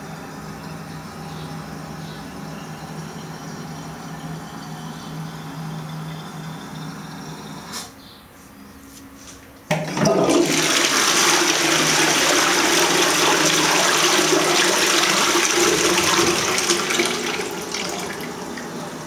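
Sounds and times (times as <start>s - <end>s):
toilet flushing: 9.7s - 19.0s.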